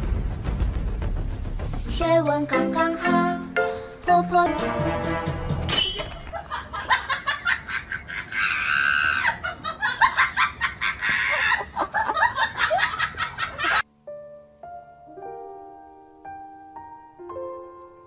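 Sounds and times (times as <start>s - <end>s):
person laughing: 6.3s - 13.8s.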